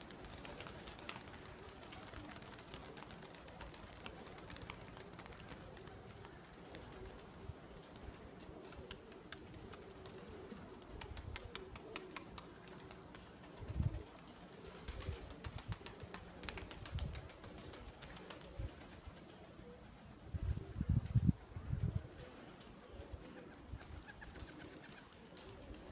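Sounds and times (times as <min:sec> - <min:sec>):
pigeons cooing: 0:00.0 - 0:25.9.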